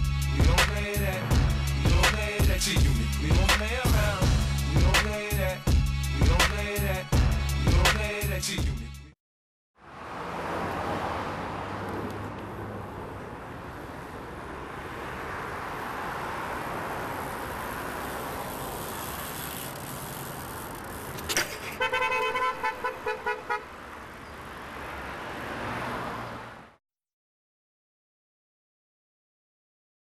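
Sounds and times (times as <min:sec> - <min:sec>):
outdoor traffic: 0:00.0 - 0:09.2, 0:09.8 - 0:26.8
short car horn beeps: 0:21.7 - 0:23.7.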